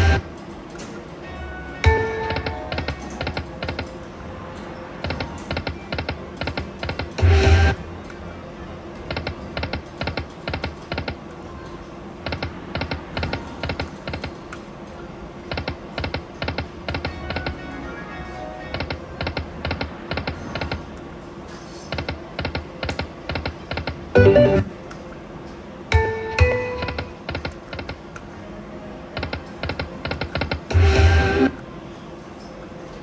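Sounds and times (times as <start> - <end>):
casino background music: 0.0 - 8.1, 15.6 - 20.6, 22.0 - 24.8, 25.9 - 28.2
slot machine reels clicking: 21.9 - 24.7.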